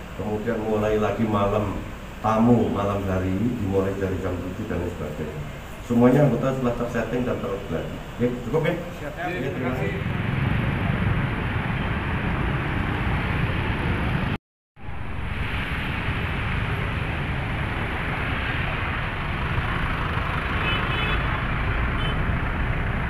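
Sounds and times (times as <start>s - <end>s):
traffic on a wet road: 0.0s - 23.0s.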